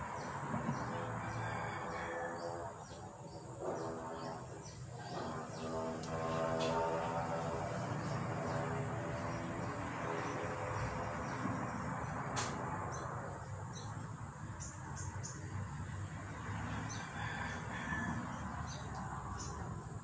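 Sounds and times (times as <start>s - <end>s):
sharp click: 12.4s - 12.6s.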